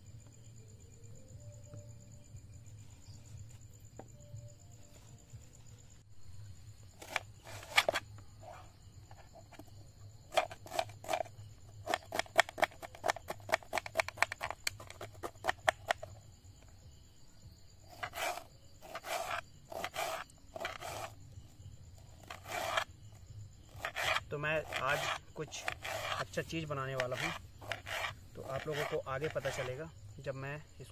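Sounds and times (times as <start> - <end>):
knife chopping on wooden board: 23.8 - 26.2.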